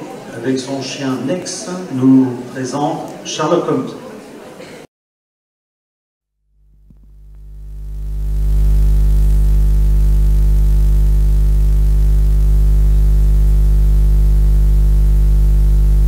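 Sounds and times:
low electronic drone: 0:06.8 - 0:16.0.

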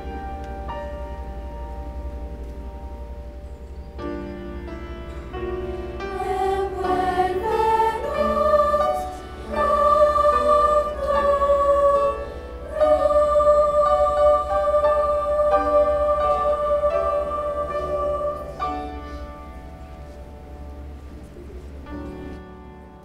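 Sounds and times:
piano accompaniment: 0:00.0 - 0:23.0
mixed choir singing: 0:06.0 - 0:19.5.

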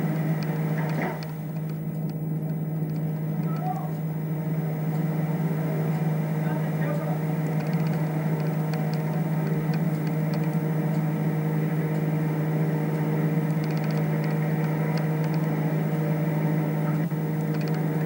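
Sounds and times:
steady machine hum: 0:00.0 - 0:18.0
faint high ticks: 0:13.5 - 0:15.5.

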